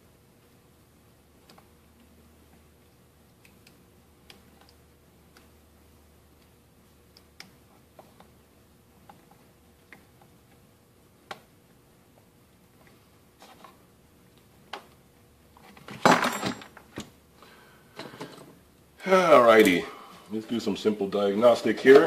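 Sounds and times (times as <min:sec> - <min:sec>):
light clicks of small parts: 0:01.4 - 0:05.6
parts clattering and rustling: 0:15.5 - 0:17.2, 0:17.9 - 0:18.6.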